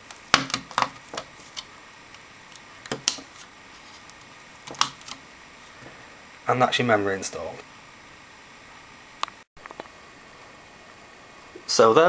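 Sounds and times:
plastic clips snapping into place: 4.7s - 5.2s.

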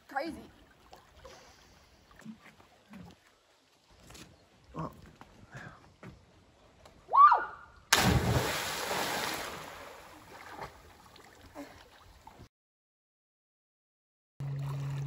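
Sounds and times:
body splashing into water: 7.9s - 11.9s.

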